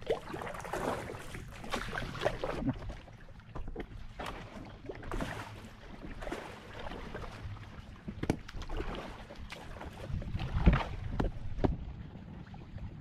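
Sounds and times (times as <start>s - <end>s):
paddle splashing in water: 0.0s - 12.0s
water lapping against hull: 0.0s - 13.0s.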